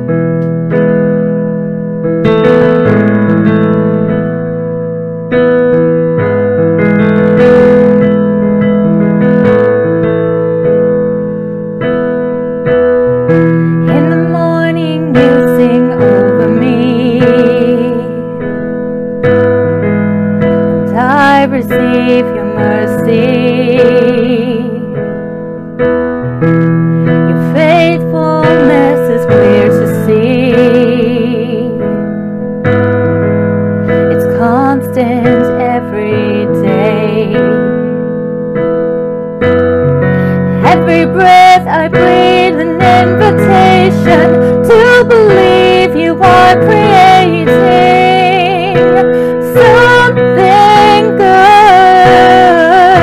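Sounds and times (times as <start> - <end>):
slow piano chords: 0.0 - 53.0
woman singing with vibrato: 13.8 - 18.4, 20.8 - 25.0, 27.3 - 32.0, 34.1 - 38.0, 40.2 - 53.0.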